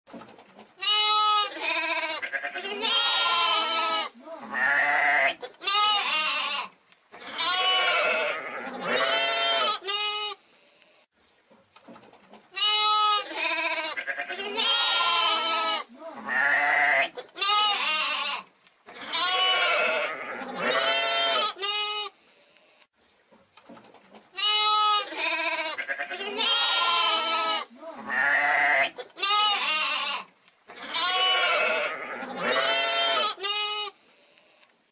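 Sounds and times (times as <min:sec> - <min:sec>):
lamb bleating: 0:00.8 - 0:10.4, 0:12.6 - 0:22.2, 0:24.4 - 0:34.0.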